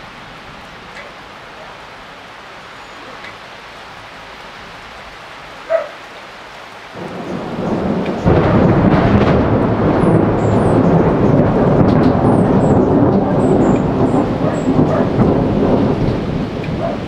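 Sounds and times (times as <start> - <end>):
steady rain: 0.0 - 17.0
thunder rumbling: 6.9 - 17.0.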